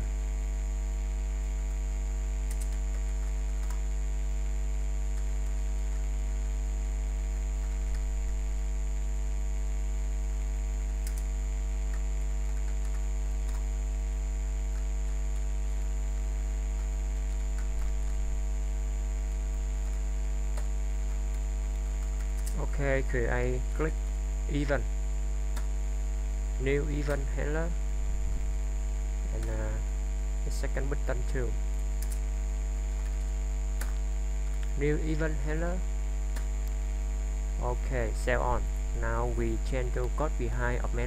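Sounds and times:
electrical mains hum: 0:00.0 - 0:41.0
faint high whine: 0:00.0 - 0:41.0
keyboard clicks: 0:02.4 - 0:03.9, 0:07.6 - 0:08.1, 0:11.0 - 0:13.7, 0:16.7 - 0:18.3, 0:19.8 - 0:20.7, 0:21.3 - 0:22.7, 0:25.5 - 0:25.7, 0:32.0 - 0:32.3, 0:33.0 - 0:34.8, 0:36.3 - 0:36.8.

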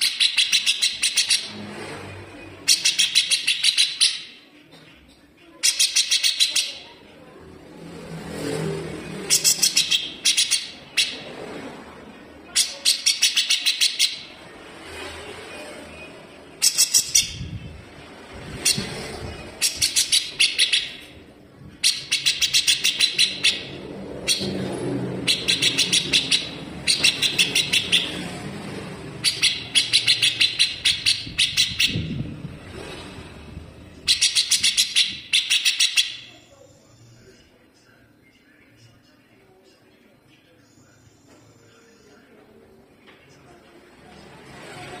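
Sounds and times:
bird singing in harsh rapid bursts: 0:00.0 - 0:01.6, 0:02.4 - 0:04.4, 0:05.6 - 0:06.9, 0:09.0 - 0:11.4, 0:12.2 - 0:14.6, 0:15.9 - 0:32.6, 0:33.6 - 0:37.3.

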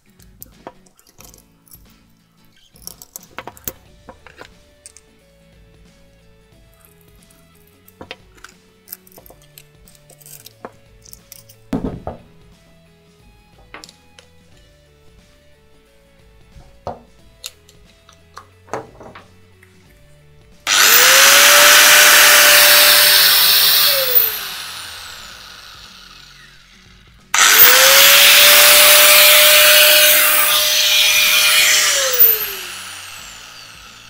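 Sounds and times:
angle grinder whining: 0:20.7 - 0:34.0.

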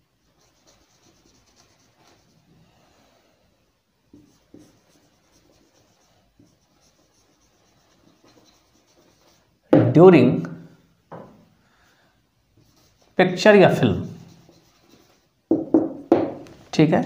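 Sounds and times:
marker pen writing on whiteboard: 0:00.2 - 0:02.4, 0:04.1 - 0:09.8, 0:12.5 - 0:16.5.

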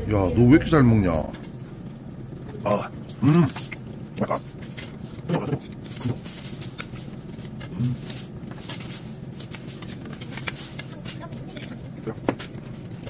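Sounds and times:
person humming: 0:02.6 - 0:03.6.

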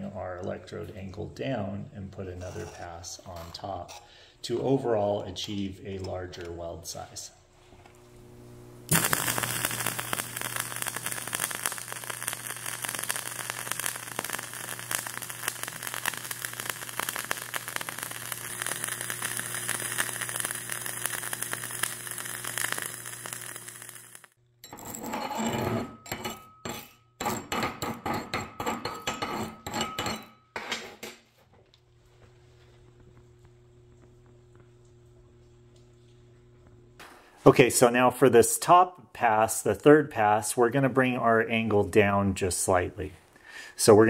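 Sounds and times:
welding arc crackling: 0:08.0 - 0:24.4.

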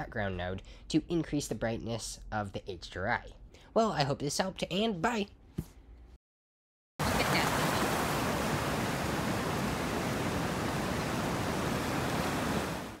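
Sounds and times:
stream water flowing: 0:07.0 - 0:13.0.

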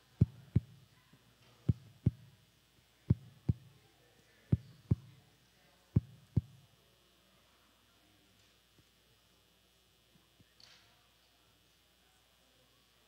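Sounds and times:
low sharp thumps in pairs: 0:00.2 - 0:00.8, 0:01.7 - 0:02.3, 0:03.1 - 0:03.7.

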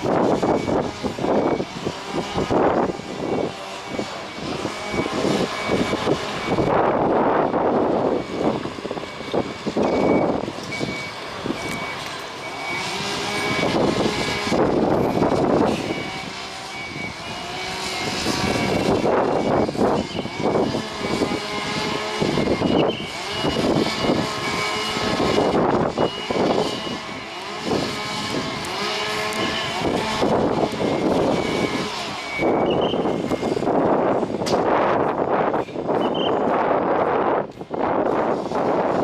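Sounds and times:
truck diesel engine revving: 0:00.0 - 0:35.2.

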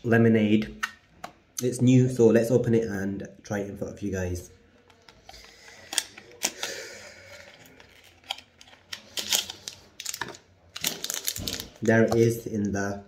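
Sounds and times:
small clicks and crinkles: 0:04.8 - 0:12.3.

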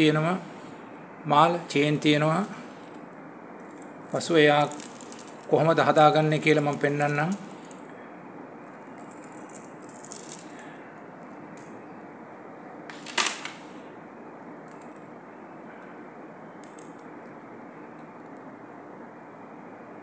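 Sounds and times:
steady background hiss: 0:00.0 - 0:20.0
beads clicking and rattling: 0:03.6 - 0:05.6, 0:08.6 - 0:11.7, 0:14.7 - 0:15.1.

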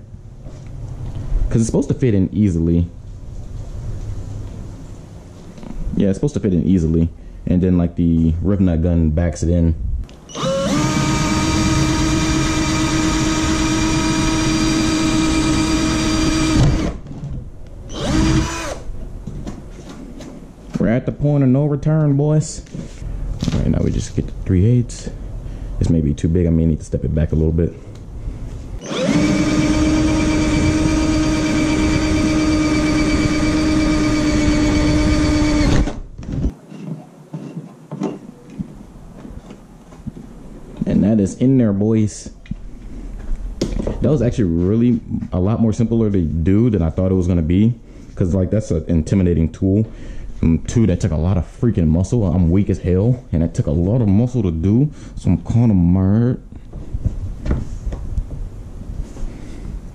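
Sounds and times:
power drill drilling: 0:10.3 - 0:17.0, 0:17.9 - 0:18.8, 0:28.8 - 0:36.0.

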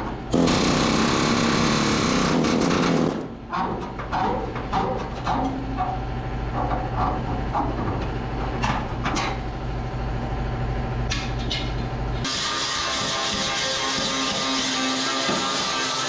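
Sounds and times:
steady low hum: 0:00.0 - 0:14.4
metal clanks and knocks: 0:02.5 - 0:09.4.

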